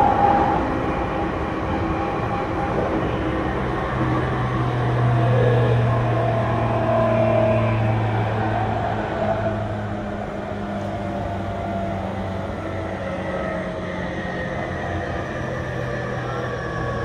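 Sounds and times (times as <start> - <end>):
electric train motor whine: 0.0 - 10.4
wheels rumbling on rails: 0.0 - 17.0.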